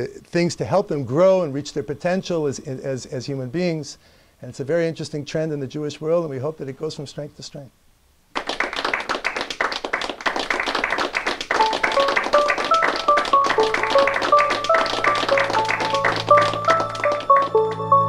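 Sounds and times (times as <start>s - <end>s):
audience applauding: 8.4s - 18.0s
melody over low drone: 11.6s - 18.0s.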